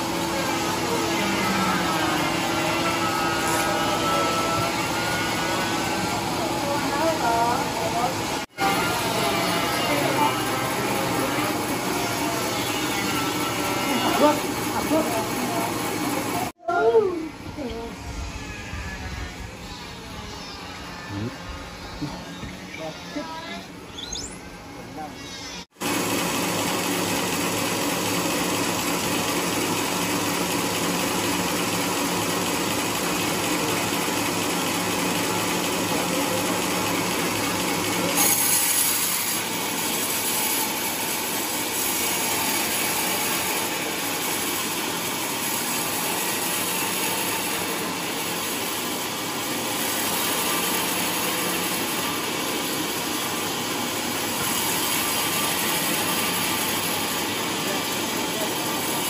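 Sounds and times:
band saw cutting log: 0.0 - 16.4, 32.0 - 59.0.

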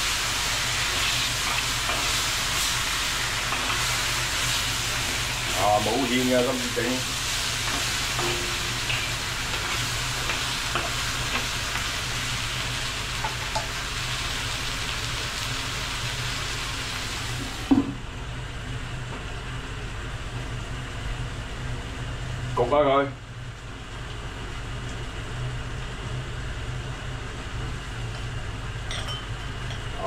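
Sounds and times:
food sizzling in a wok: 0.0 - 18.9
steady low hum: 0.0 - 30.0.

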